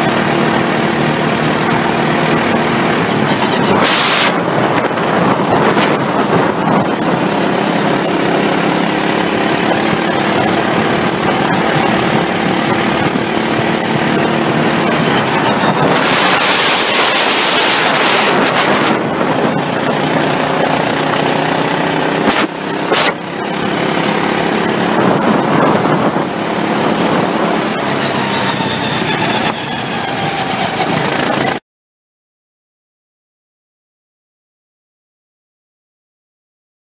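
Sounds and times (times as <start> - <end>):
go-kart engine running hard: 0.0 - 31.6
track noise: 0.0 - 31.6
wind rush: 1.0 - 31.6.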